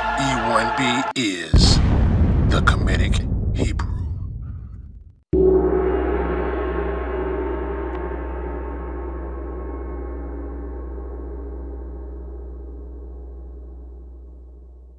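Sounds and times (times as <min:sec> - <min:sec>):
deep low rumble: 0:01.8 - 0:14.9
large gong ringing: 0:05.4 - 0:14.9.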